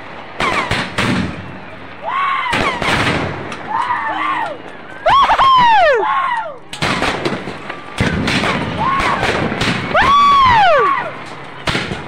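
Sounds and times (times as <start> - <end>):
firework bangs and crackling: 0.0 - 1.7, 2.5 - 3.8, 6.7 - 12.0.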